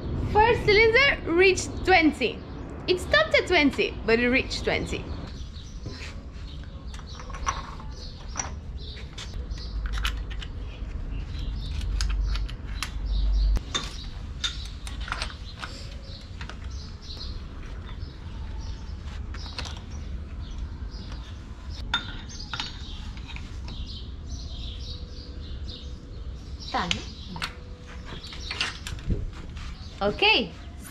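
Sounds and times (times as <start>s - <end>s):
low rumble: 0.0s - 5.8s.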